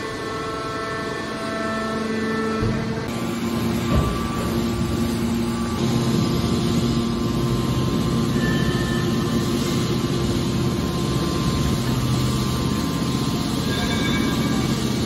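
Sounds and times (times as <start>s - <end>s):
hydraulic power unit humming: 0.0s - 15.0s.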